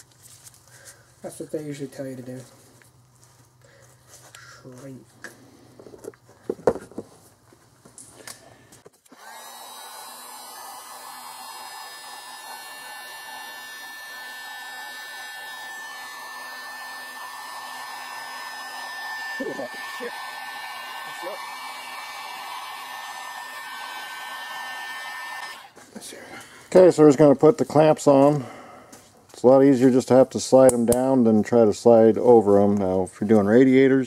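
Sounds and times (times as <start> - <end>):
heat gun blowing air: 9.0 - 25.8.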